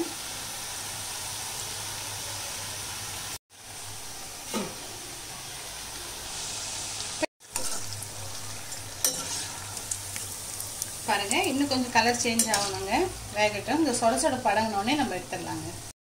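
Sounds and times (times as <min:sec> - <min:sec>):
dough deep-frying in hot oil: 0:00.0 - 0:16.0
slotted spoon stirring oil: 0:07.4 - 0:13.3.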